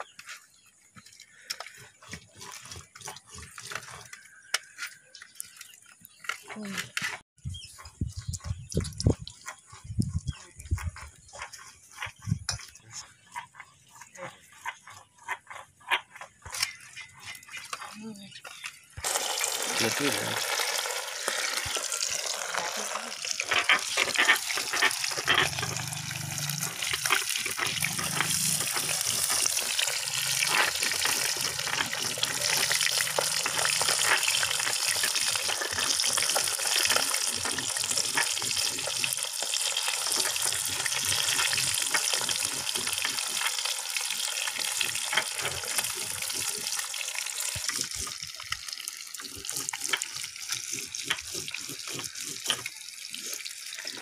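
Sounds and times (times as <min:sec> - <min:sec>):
oil popping and crackling: 0:07.8 - 0:54.0
fish frying in oil: 0:19.0 - 0:54.0.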